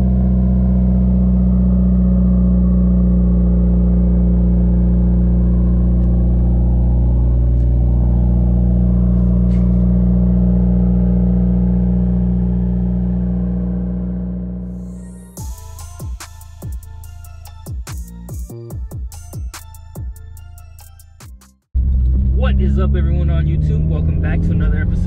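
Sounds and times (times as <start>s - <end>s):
car engine idling: 0.0s - 17.2s
electronic music: 14.4s - 21.6s.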